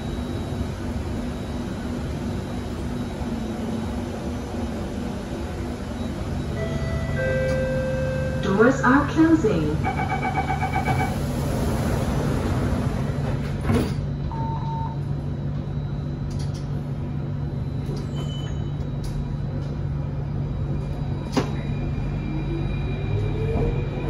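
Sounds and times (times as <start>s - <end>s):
train low hum: 0.0s - 24.0s
door-closing warning beeps: 9.8s - 11.2s, 13.7s - 15.0s, 17.8s - 19.2s.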